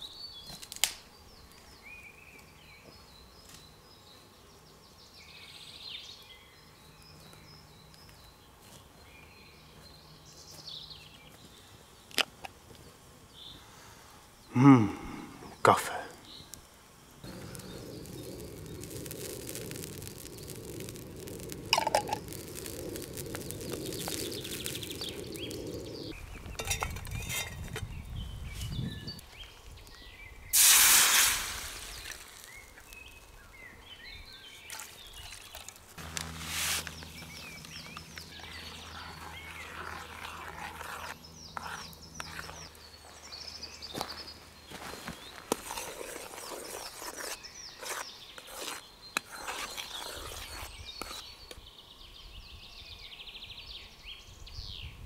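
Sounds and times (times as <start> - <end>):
birds chirping and singing: 23.0 - 30.5, 36.8 - 45.6
loud rushing hiss: 30.5 - 32.8, 36.0 - 38.9.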